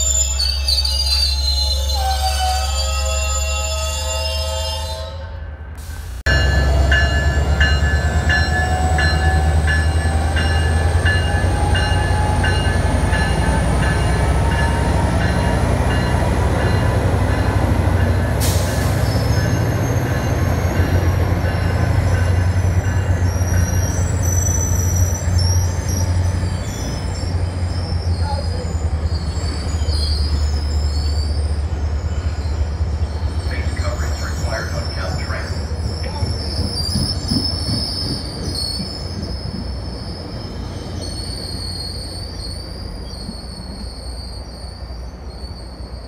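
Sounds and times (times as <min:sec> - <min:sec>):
rising train whine: 0:00.0 - 0:46.0
train engine rumble: 0:00.0 - 0:46.0
train bell ringing: 0:06.3 - 0:26.2
wheels squealing: 0:14.4 - 0:46.0.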